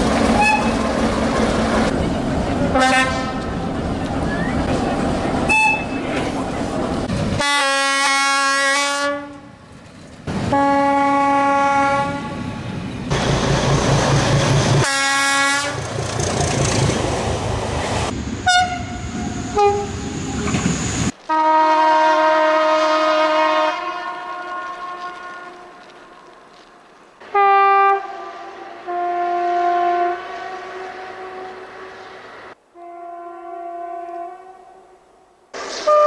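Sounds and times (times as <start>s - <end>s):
diesel locomotive engine running: 0.0s - 7.5s, 12.4s - 21.2s
rail noise: 0.0s - 36.0s
train horn blasts: 0.4s - 0.8s, 2.7s - 3.6s, 7.4s - 9.6s, 10.5s - 12.5s, 14.8s - 15.8s, 18.4s - 20.0s, 21.3s - 25.8s, 27.2s - 32.1s, 32.7s - 35.0s.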